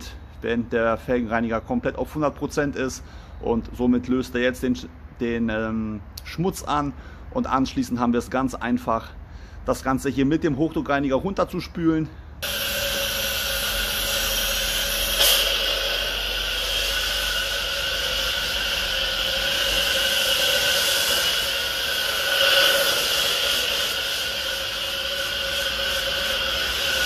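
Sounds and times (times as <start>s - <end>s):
pressure washer spraying foam: 12.4s - 27.0s.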